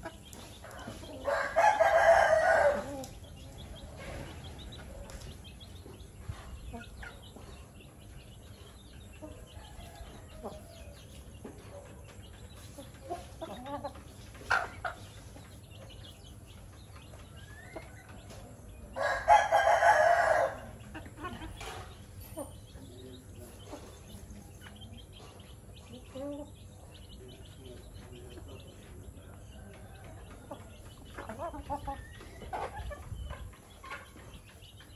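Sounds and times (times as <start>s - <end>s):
chickens clucking: 0.0s - 34.9s
rooster crowing: 1.3s - 2.9s, 19.0s - 20.7s.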